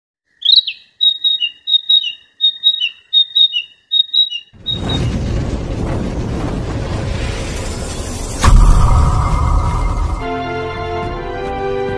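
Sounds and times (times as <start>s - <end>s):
loud rumbling intro music: 4.6s - 11.9s.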